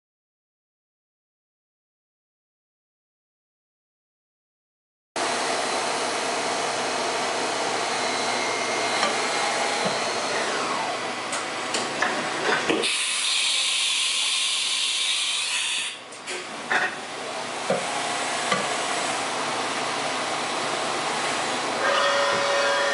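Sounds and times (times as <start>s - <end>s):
machine steady hiss: 12.8s - 16.0s.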